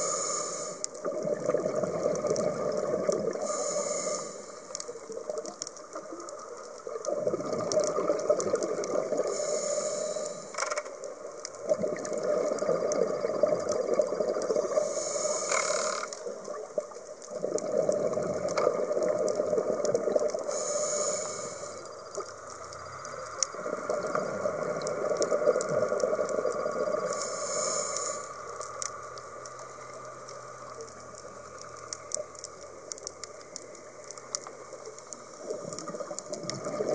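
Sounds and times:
diver breathing through regulator: 0.0 - 0.9, 3.3 - 4.8, 9.2 - 10.7, 14.6 - 16.2, 20.4 - 21.9, 27.1 - 28.8
exhaled bubbles rushing: 1.1 - 3.4, 7.1 - 9.3, 11.6 - 14.7, 17.3 - 20.4, 35.4 - 36.9.

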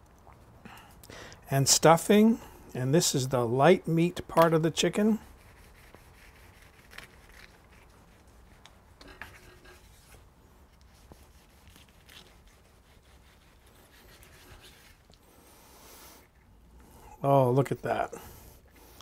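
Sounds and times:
knife sawing through meat: 11.1 - 15.1.

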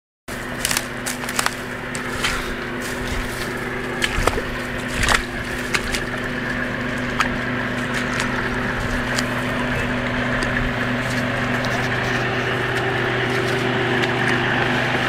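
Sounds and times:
off-road vehicle engine running: 0.3 - 15.0
sharp knocks and cracks: 0.4 - 6.3.

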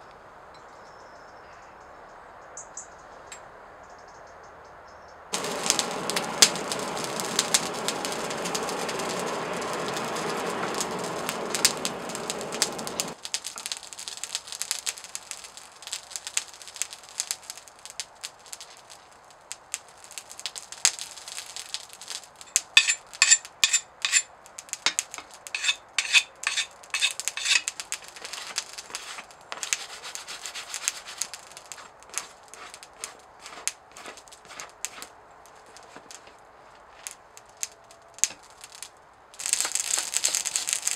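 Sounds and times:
forge fire rushing: 5.3 - 17.5, 19.8 - 38.8, 39.4 - 40.9
hot metal quenched in water crackling: 5.3 - 40.9.

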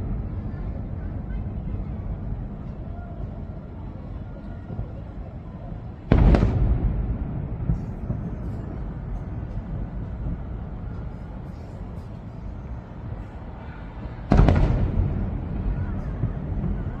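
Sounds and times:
low rumble of firework bursts: 0.0 - 17.0
firework boom: 6.0 - 10.8, 14.3 - 17.0.

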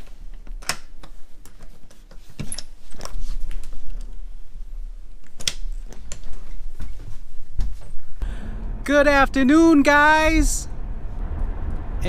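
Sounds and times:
low handling rumble: 8.2 - 12.0.

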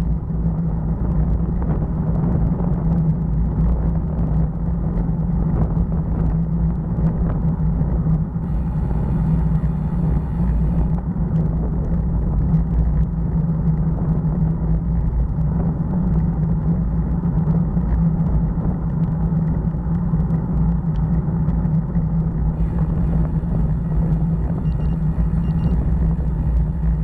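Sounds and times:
wind buffeting microphone: 0.0 - 27.0
tyre noise on asphalt: 8.4 - 27.0
faint ticks: 17.4 - 27.0.

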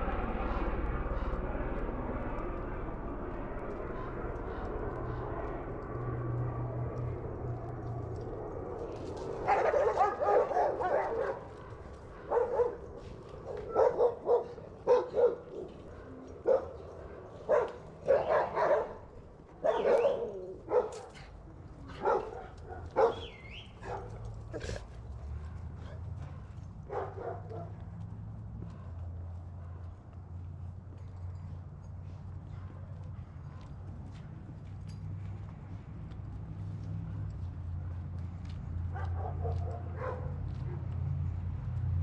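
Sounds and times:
dog barking: 9.4 - 21.3, 21.9 - 24.8, 25.4 - 27.8, 38.9 - 40.9.

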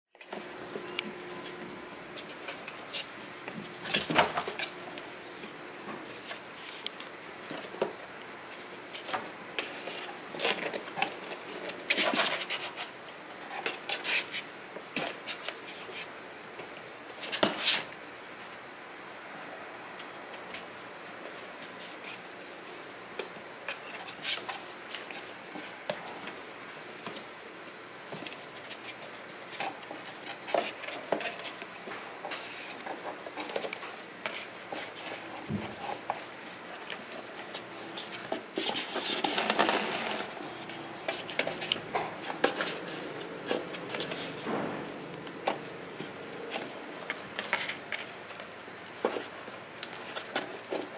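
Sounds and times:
kittens scratching on cardboard box: 6.0 - 16.1, 26.6 - 50.9.

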